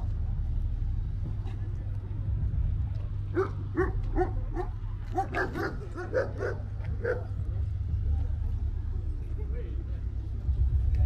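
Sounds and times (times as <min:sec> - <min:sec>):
low steady rumble: 0:00.0 - 0:11.0
dog barking: 0:03.4 - 0:07.3.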